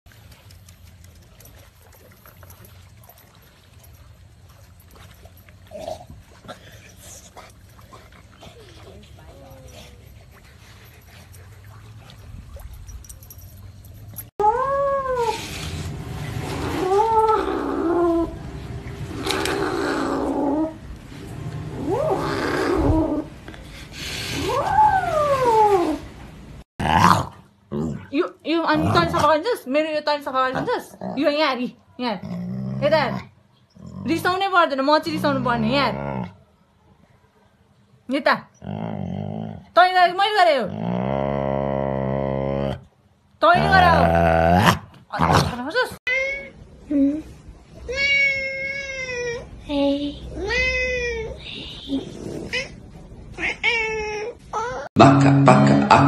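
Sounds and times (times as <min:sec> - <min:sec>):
water lapping and splashing: 0:00.1 - 0:14.3, 0:15.3 - 0:26.7.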